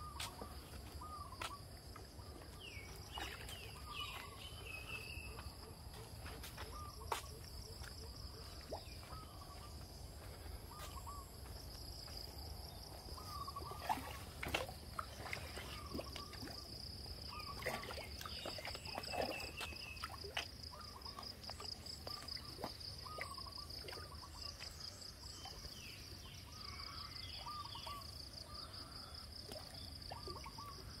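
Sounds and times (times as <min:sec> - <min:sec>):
birds chirping: 0:02.2 - 0:06.0.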